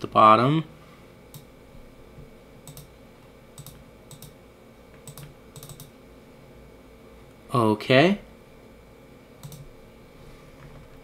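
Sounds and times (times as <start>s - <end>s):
low room hum: 0.0s - 11.0s
computer mouse clicks: 2.6s - 2.9s, 3.6s - 4.4s, 5.0s - 5.9s, 9.4s - 9.7s.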